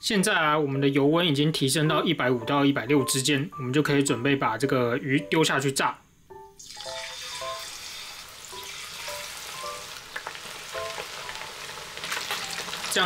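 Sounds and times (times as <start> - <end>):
fish sizzling in hot oil: 6.6 - 13.0.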